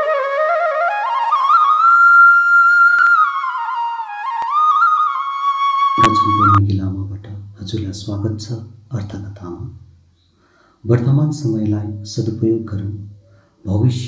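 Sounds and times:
instrumental melody: 0:00.0 - 0:07.2.

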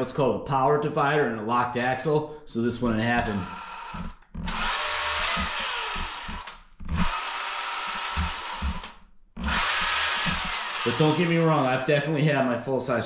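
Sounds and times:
electric motor and gearbox whining: 0:03.2 - 0:11.9.

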